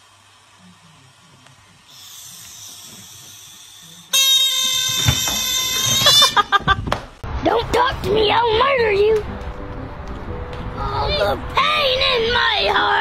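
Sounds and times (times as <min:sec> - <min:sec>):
air squealing from balloon neck: 0:01.9 - 0:06.5.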